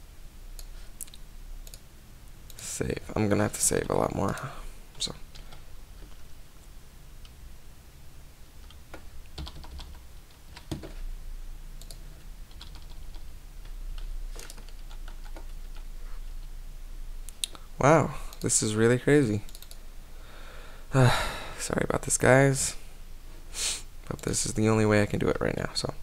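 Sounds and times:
faint low hum: 0:00.0 - 0:26.0
computer keyboard keystrokes: 0:08.6 - 0:11.0, 0:11.8 - 0:15.9, 0:19.5 - 0:19.8.

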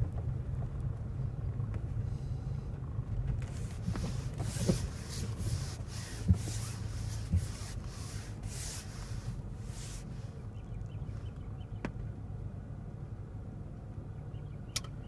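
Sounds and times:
engine and road hum: 0:00.0 - 0:15.0
short swishes: 0:03.4 - 0:10.4.

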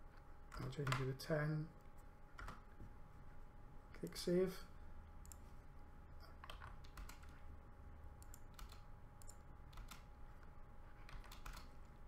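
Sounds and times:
faint electrical hum: 0:00.0 - 0:12.0
keyboard keys clicking: 0:06.4 - 0:07.3, 0:08.2 - 0:10.0, 0:11.1 - 0:11.7.

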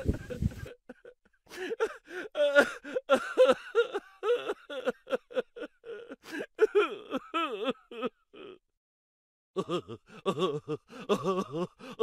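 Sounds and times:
man moaning and gasping: 0:01.5 - 0:03.2, 0:05.8 - 0:08.6, 0:09.6 - 0:12.0.

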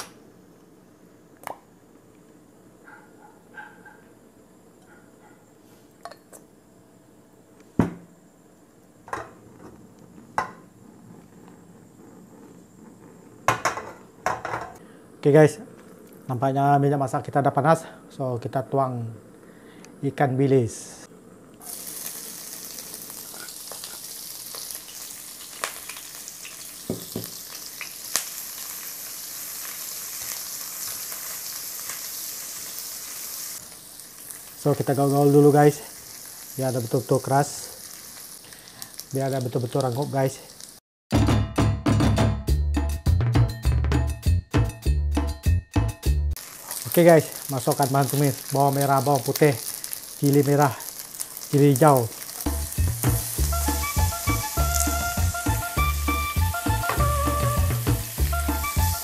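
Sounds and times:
fish sizzling in hot oil: 0:21.6 - 0:40.8, 0:46.4 - 0:59.0.

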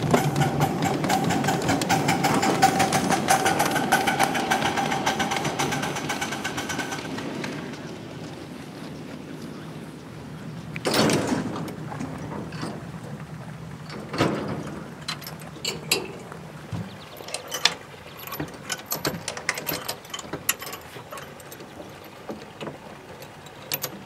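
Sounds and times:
metallic clicks of train coupler: 0:00.0 - 0:07.8, 0:13.9 - 0:16.3.

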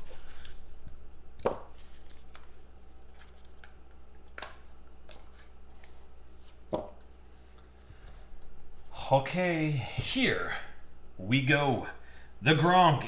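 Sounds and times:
cards tapping and scraping: 0:00.0 - 0:08.3
faint low hum: 0:00.0 - 0:13.0.

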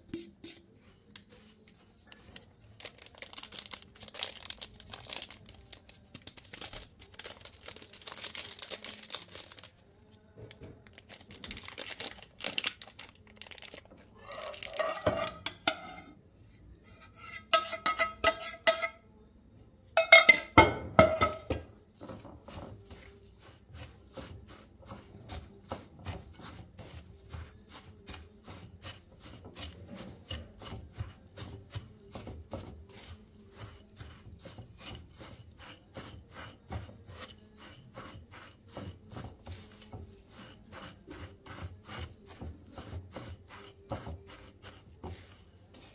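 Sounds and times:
paper packet crinkling: 0:02.0 - 0:09.8, 0:10.9 - 0:14.8
spatula scraping crumbs in glass bowl: 0:14.1 - 0:16.2, 0:16.8 - 0:19.0, 0:20.1 - 0:45.9.

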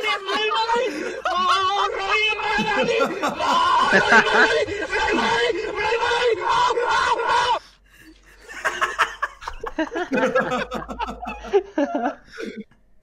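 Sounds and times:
person shouting: 0:00.0 - 0:07.6
people laughing: 0:00.0 - 0:12.7.

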